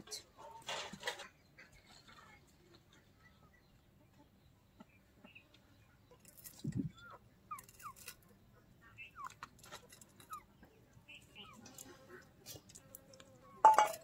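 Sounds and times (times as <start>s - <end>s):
faint bird chirps: 1.2s - 9.4s, 10.2s - 12.2s.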